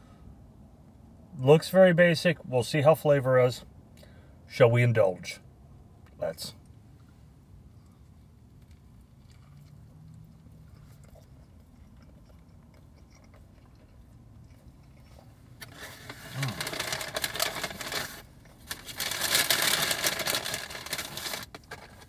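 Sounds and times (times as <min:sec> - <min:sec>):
person chewing food: 0:07.7 - 0:16.8
paper packaging crinkling: 0:15.6 - 0:22.0.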